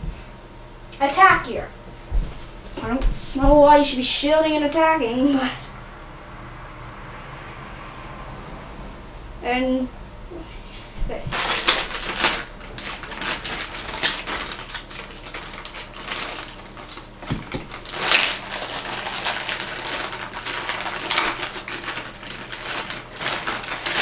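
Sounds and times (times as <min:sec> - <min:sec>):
plastic bag crinkling: 0:11.3 - 0:24.0.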